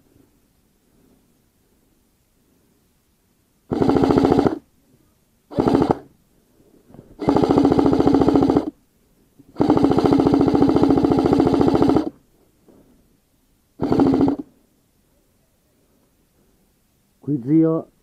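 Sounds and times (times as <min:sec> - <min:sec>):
airsoft rifle full-auto bursts: 0:03.7 - 0:04.7, 0:05.5 - 0:06.1, 0:07.2 - 0:08.8, 0:09.6 - 0:12.2, 0:13.8 - 0:14.5.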